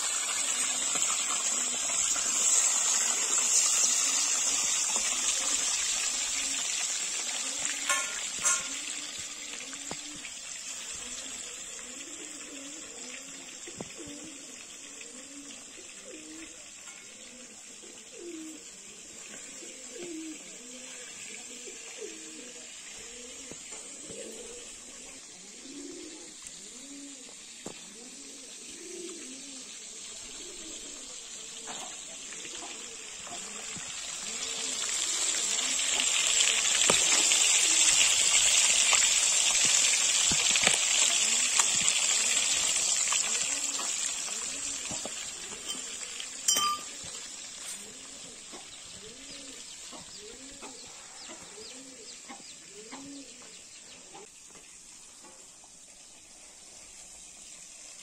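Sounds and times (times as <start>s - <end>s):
pigeons cooing: 0.0s - 54.3s
fish sizzling in hot oil: 0.0s - 58.0s
metallic clink: 46.5s - 47.0s.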